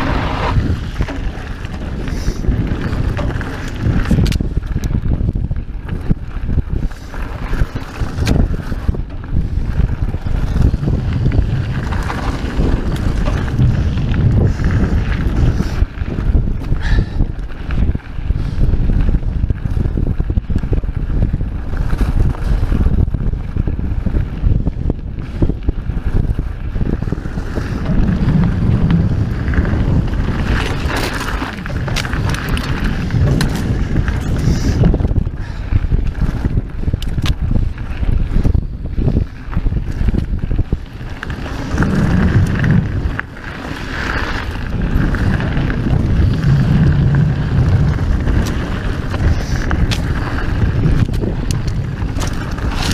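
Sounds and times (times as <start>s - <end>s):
bike rattling: 0.0s - 52.9s
bike tyres rumbling on dirt: 0.0s - 52.9s
wind buffeting microphone: 0.0s - 52.9s
bike hitting rocks: 26.9s - 35.6s.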